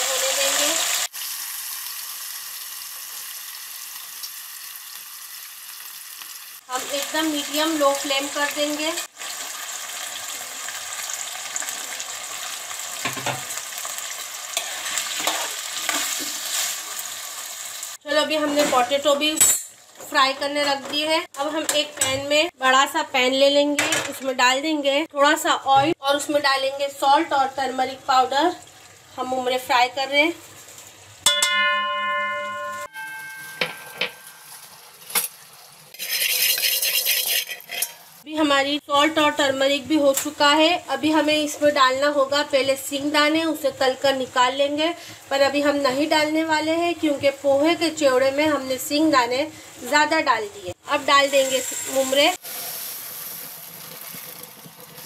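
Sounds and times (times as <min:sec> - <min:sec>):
potatoes sizzling in oil: 0:00.0 - 0:23.0, 0:25.3 - 0:31.3, 0:33.0 - 0:55.0
metal pan ringing: 0:31.3 - 0:34.6
steel spoon scraping pan: 0:32.6 - 0:38.2.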